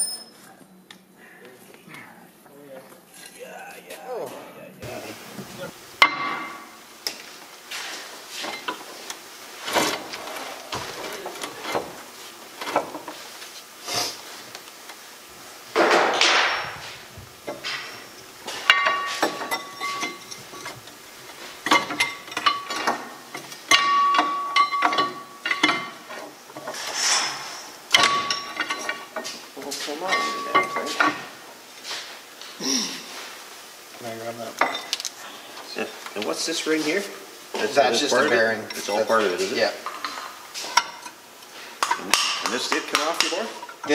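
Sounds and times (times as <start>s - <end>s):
metal tools clanking on steel: 0.0s - 0.4s, 15.8s - 31.3s
metal scrape: 26.6s - 27.8s.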